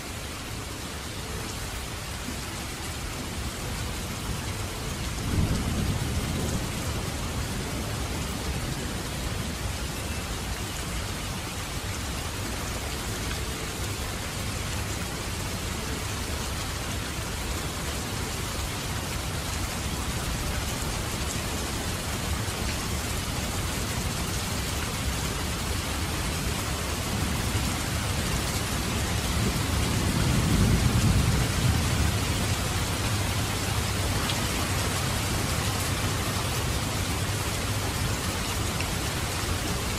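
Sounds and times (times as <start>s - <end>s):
steady rain falling: 0.0s - 39.9s
distant thunder rumbles: 28.9s - 33.9s.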